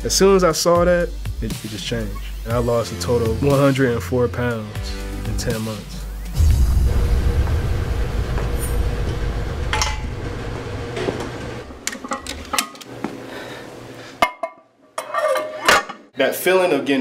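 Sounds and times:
loud low rumble: 0:06.4 - 0:11.6.

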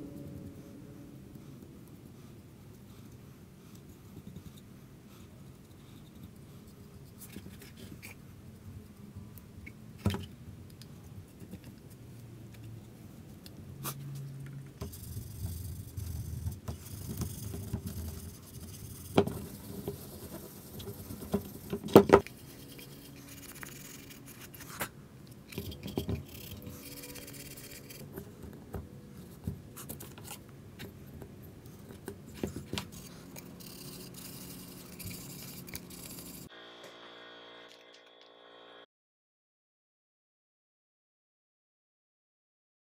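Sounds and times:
brush applying finish: 0:14.9 - 0:24.9, 0:25.7 - 0:28.2, 0:32.9 - 0:36.5.

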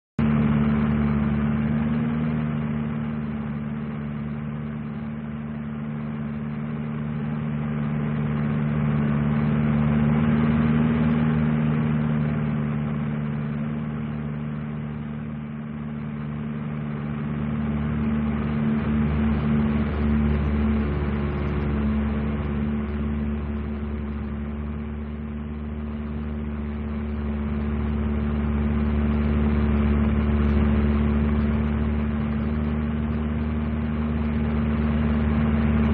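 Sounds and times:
propeller aircraft engine: 0:00.0 - 0:35.9.

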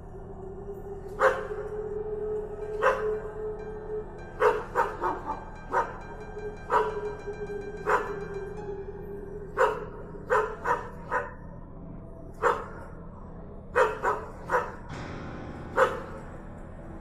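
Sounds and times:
dog barking: 0:01.2 - 0:01.7, 0:02.8 - 0:03.2, 0:04.4 - 0:06.0, 0:06.6 - 0:07.1, 0:07.8 - 0:08.3, 0:09.5 - 0:11.4, 0:12.4 - 0:13.0, 0:13.7 - 0:14.9, 0:15.7 - 0:16.2.

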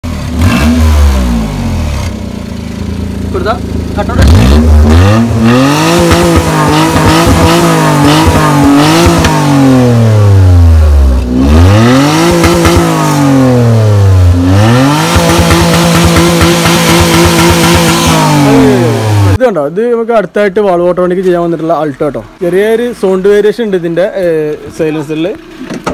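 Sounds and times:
small car engine revving: 0:00.0 - 0:19.4.

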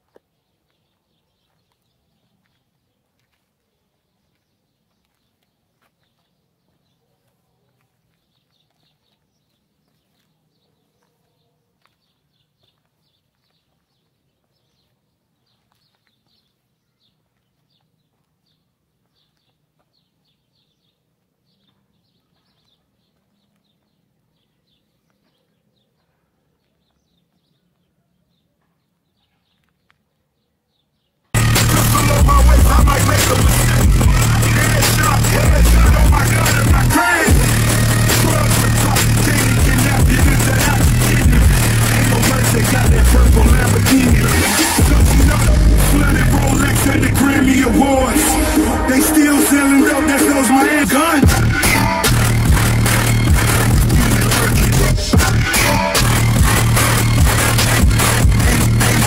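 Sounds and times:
faint birds chirping: 0:00.0 - 0:32.1
bass-heavy hip hop from car: 0:31.4 - 0:59.0
low hum: 0:31.4 - 0:59.0.

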